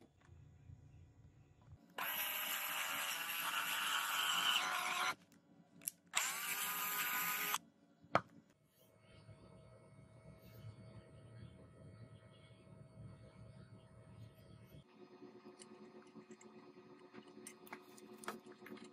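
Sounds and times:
cordless drill cutting thread: 2.0 - 5.2, 6.2 - 7.6.

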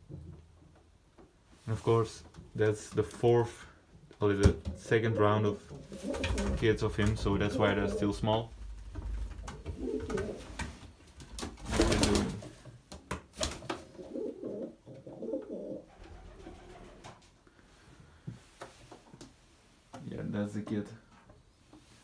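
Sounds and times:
pigeons cooing: 4.9 - 8.4, 9.5 - 10.5, 14.0 - 17.0.

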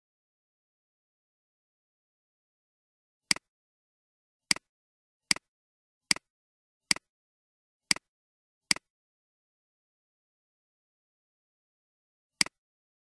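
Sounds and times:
computer mouse clicks: 12.4 - 12.6.

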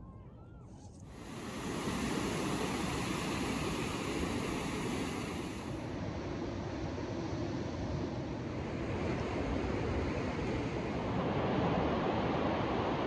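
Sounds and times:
ocean surf breaking: 1.2 - 5.8.

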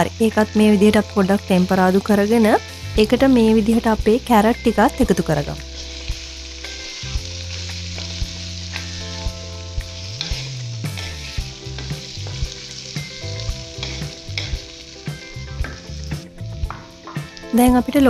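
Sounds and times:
food sizzling in hot oil: 0.0 - 18.0
spatula scraping a pan: 5.8 - 9.2, 9.9 - 16.0.

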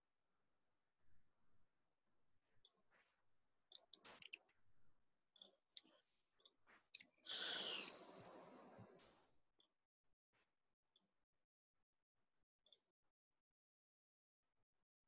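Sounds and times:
faint clicks: 3.7 - 4.4, 5.4 - 9.1.

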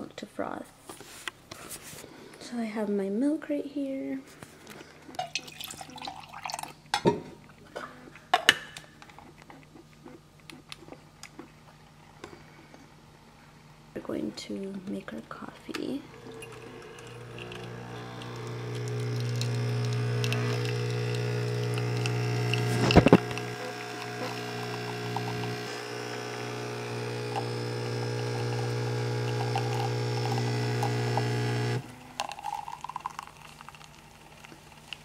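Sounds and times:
espresso machine pump buzzing: 15.7 - 35.0.

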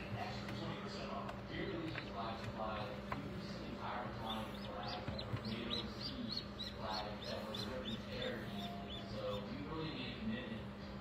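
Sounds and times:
duckling peeping: 4.0 - 9.7.

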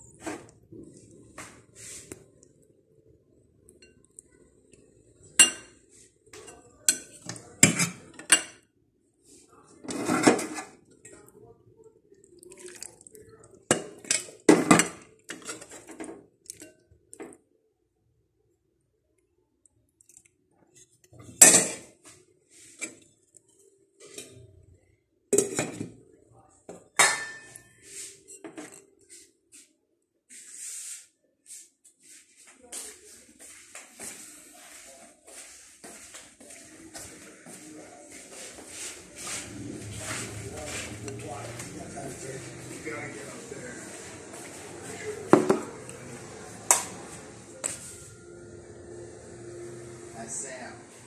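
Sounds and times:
utensils clinking on ceramic bowl: 5.4 - 5.8.

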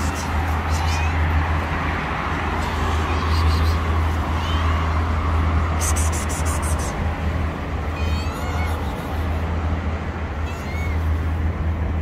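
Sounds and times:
kitten meowing: 0.7 - 1.2, 2.8 - 5.0, 7.9 - 9.2, 10.4 - 11.1.

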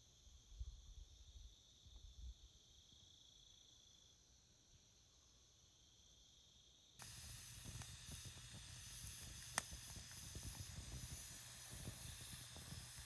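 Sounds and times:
crickets chirping: 0.0 - 13.0
wood fire crackling: 7.0 - 13.0.

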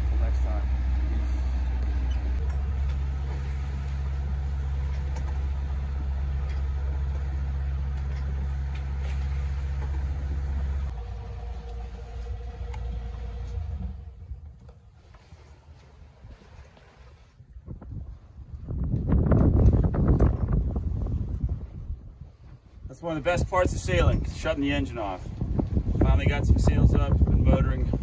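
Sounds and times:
boat engine humming: 0.0 - 28.0.

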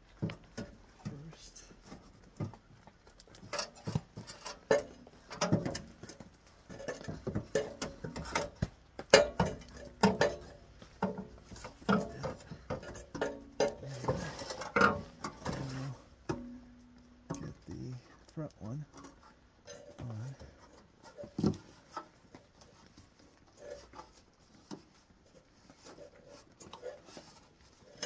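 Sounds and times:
metal muffler knocking and clanking: 3.4 - 17.7.

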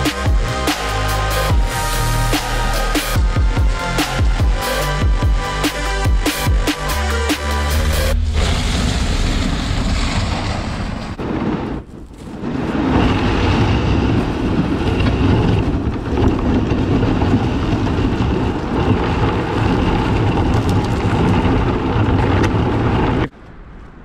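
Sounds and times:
plastic hull scraping over shingle: 11.2 - 23.3.

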